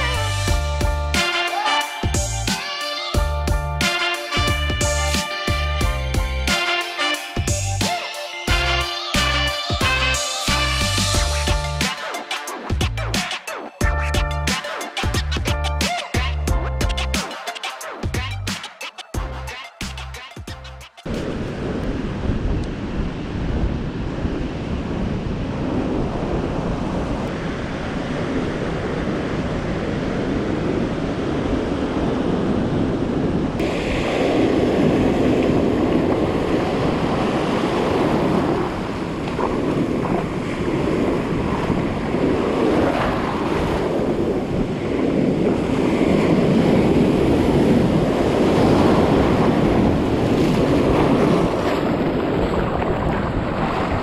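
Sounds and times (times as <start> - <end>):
ocean surf on sandy beach: 1.2 - 3.2, 3.9 - 4.5, 21.1 - 54.0
wind buffeting microphone: 21.1 - 54.0.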